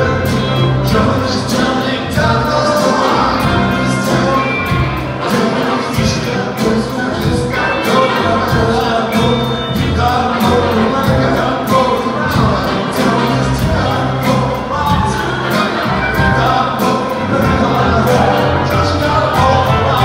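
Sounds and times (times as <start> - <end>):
live funk band playing: 0.0 - 20.0
voices singing: 0.0 - 20.0.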